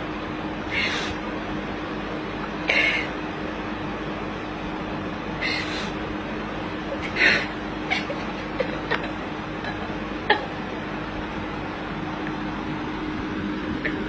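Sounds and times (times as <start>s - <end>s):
background hiss and hum: 0.0s - 14.0s
young woman sobbing: 6.9s - 10.5s.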